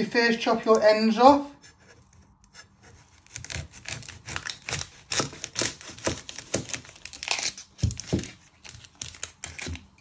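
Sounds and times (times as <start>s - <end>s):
onion skin crackling under knife: 2.4s - 10.0s.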